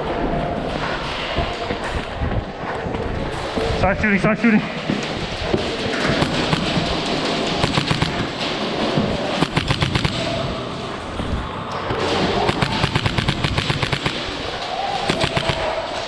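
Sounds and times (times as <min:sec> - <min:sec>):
airsoft gunshots: 0:06.0 - 0:08.4, 0:09.3 - 0:10.5, 0:12.1 - 0:16.0.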